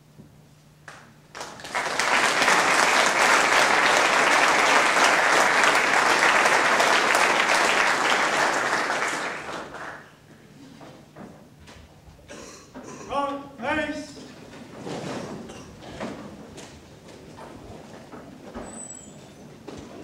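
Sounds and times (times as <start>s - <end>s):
audience applauding: 1.3s - 10.3s.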